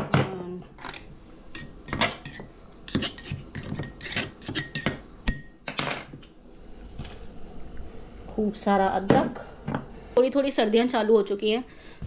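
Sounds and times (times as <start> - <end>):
knife clinking in metal mortar: 1.5 - 5.7.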